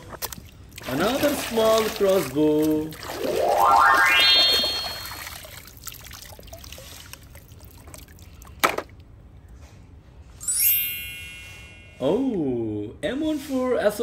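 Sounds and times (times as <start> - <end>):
water splashing and trickling: 0.0 - 8.6
rising tone: 3.2 - 5.4
bright chime: 10.4 - 12.2.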